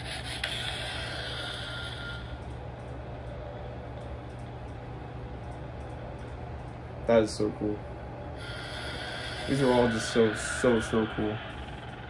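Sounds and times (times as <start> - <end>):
steady low hum: 0.0 - 12.0
lightsaber hiss: 8.4 - 11.9.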